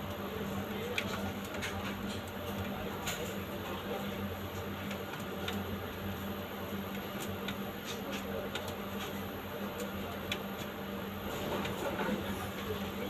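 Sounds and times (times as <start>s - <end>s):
copier humming: 0.0s - 13.0s
paper feeding ticks: 6.8s - 10.8s.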